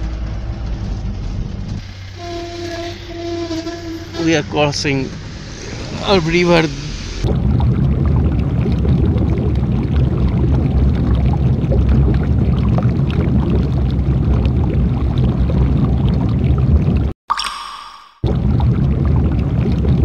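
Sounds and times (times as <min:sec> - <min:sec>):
vehicle engine running: 0:00.0 - 0:02.6
water splashing and churning: 0:03.9 - 0:20.0.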